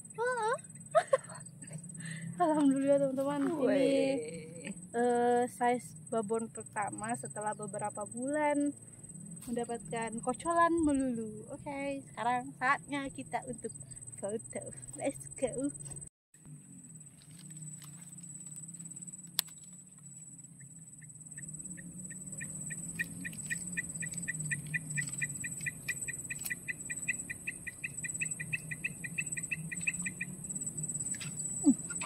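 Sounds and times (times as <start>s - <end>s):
high-pitched insect drone: 0.0s - 32.0s
low hum: 0.0s - 32.0s
rapid high pips: 20.5s - 32.0s.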